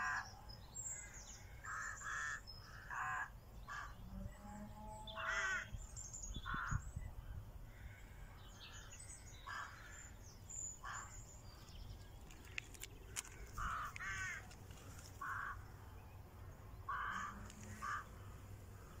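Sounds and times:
bird cawing: 0:01.0 - 0:04.0, 0:05.2 - 0:05.7, 0:07.7 - 0:10.2, 0:10.8 - 0:11.2, 0:12.5 - 0:15.7, 0:16.9 - 0:19.0.

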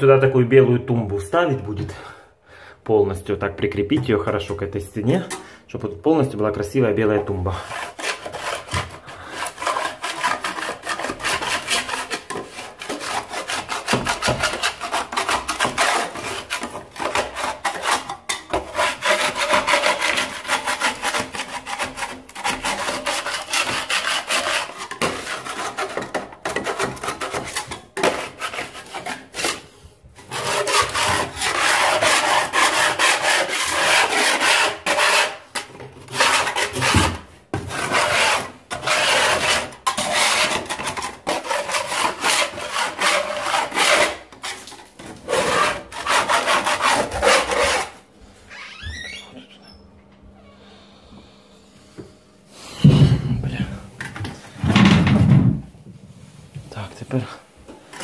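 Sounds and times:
hand scraper rasping on wall: 0:07.5 - 0:48.0.

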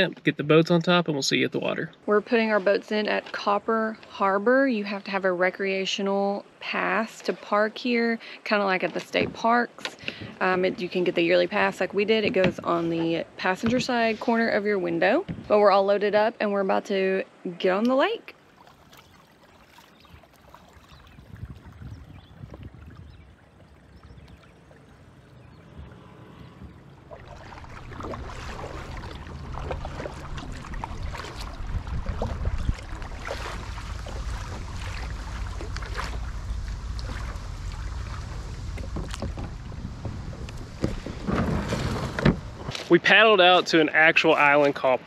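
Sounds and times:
wind rumbling on microphone: 0:09.2 - 0:15.7, 0:19.9 - 0:42.9
paddle splashing in water: 0:18.4 - 0:43.0.

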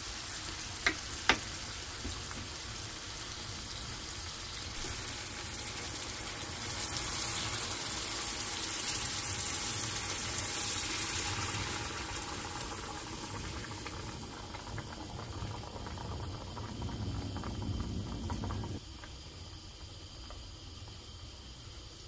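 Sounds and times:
broth bubbling in a pan: 0:00.0 - 0:22.0
low rumble: 0:15.8 - 0:18.8.

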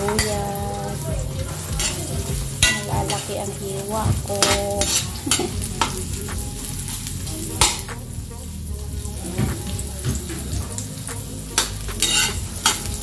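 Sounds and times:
onion sizzling in wok: 0:00.0 - 0:13.0
ladle scraping and clinking on wok: 0:11.6 - 0:13.0.

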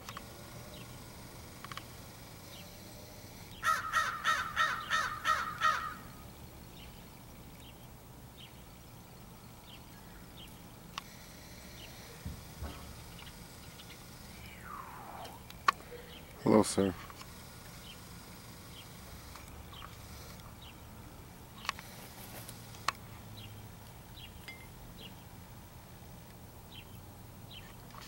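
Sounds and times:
crow cawing: 0:03.6 - 0:06.2.

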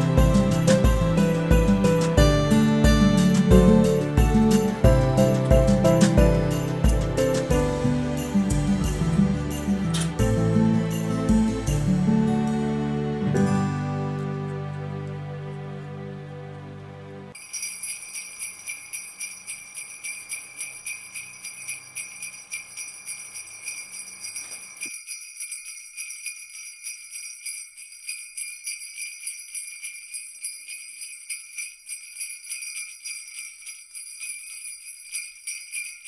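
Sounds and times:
sleigh bells jingling: 0:00.0 - 0:12.5, 0:17.3 - 0:36.0.

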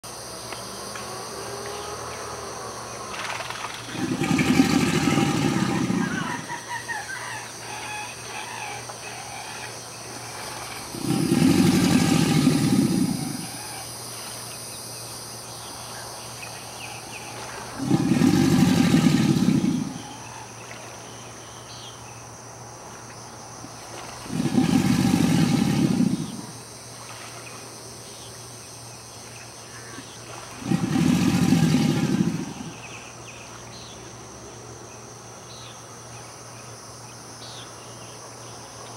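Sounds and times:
crickets chirring: 0:00.0 - 0:38.9
alligator bellowing: 0:01.7 - 0:14.0, 0:16.8 - 0:20.9, 0:23.8 - 0:26.6, 0:29.8 - 0:33.4.

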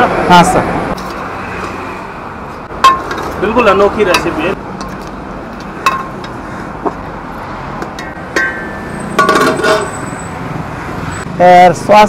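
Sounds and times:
metal ladle clinking against pot: 0:08.3 - 0:09.9
metal lid clanging onto pot: 0:08.4 - 0:09.9.

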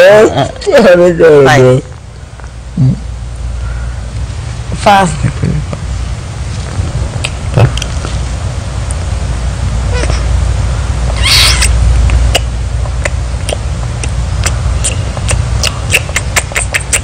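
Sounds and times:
wet kissing smacks: 0:11.1 - 0:17.0.

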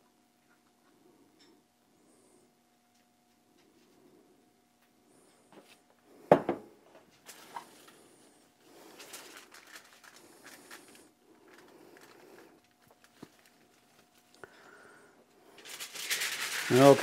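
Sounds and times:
foil crinkling and rubbing: 0:07.2 - 0:08.0, 0:08.6 - 0:14.4, 0:15.6 - 0:17.0.

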